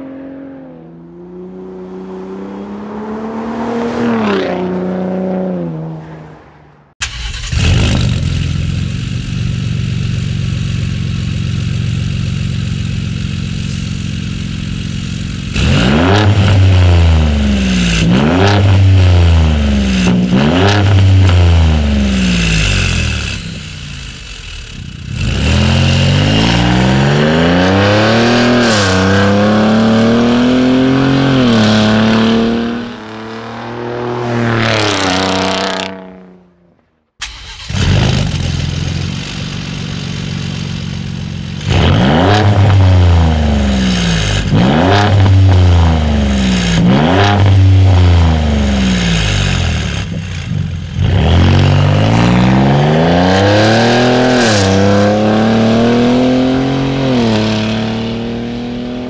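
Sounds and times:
truck accelerating through upshift: 0.0s - 8.2s, 25.1s - 38.6s, 51.0s - 59.0s
engine revving: 0.0s - 59.0s
engine idling: 7.0s - 15.6s, 37.2s - 41.7s
truck exhaust pulling away: 15.2s - 59.0s.

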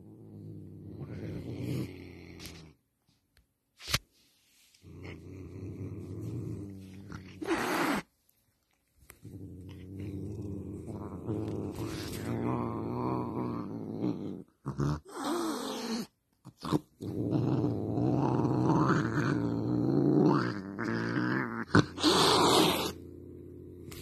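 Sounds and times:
cat growling: 0.0s - 2.8s, 4.8s - 8.1s, 8.7s - 24.0s.

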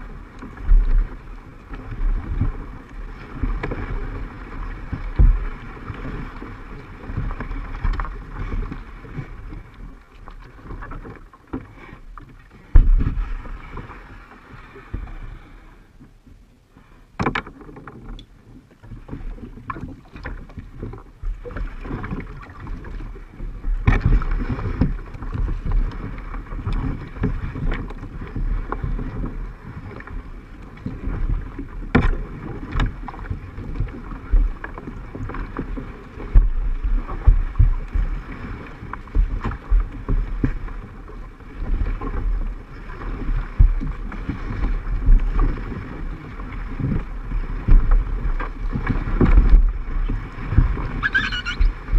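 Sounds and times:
wind rumbling on microphone: 0.0s - 16.6s, 17.2s - 51.9s
low knocks and thumps: 4.8s - 5.6s, 12.6s - 13.5s, 30.8s - 41.0s, 43.2s - 51.9s.

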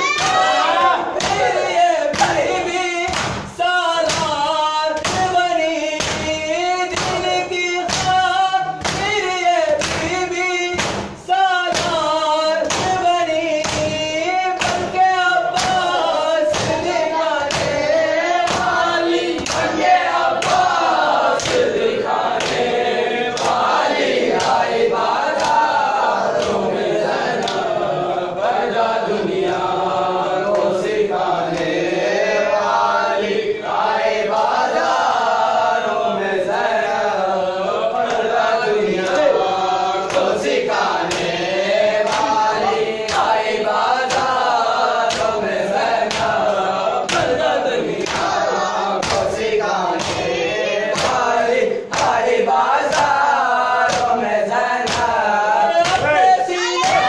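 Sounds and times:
group chanting in unison: 0.0s - 57.0s
chest-beating strikes: 55.8s - 57.0s.

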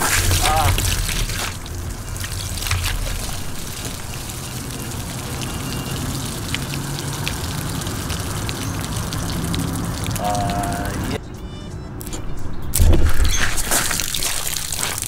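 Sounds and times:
water splashing on plastic table: 0.0s - 10.8s, 13.5s - 15.0s
water dripping off table: 0.0s - 11.2s
water spurting from balloon: 0.0s - 11.2s, 13.0s - 15.0s.

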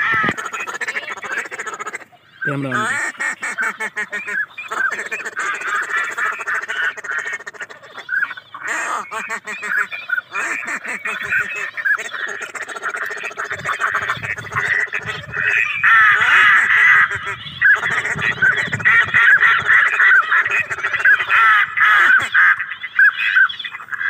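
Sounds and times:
ducks quacking: 0.0s - 24.0s.

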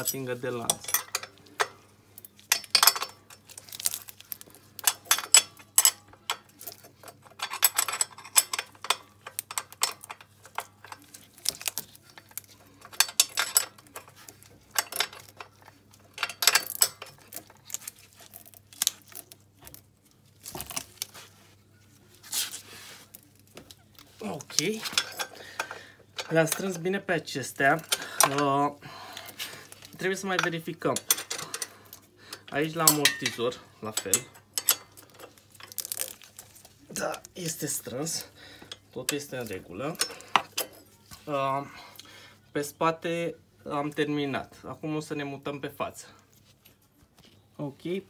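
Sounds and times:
hand tools clicking and clinking: 0.0s - 19.8s, 23.5s - 41.2s.

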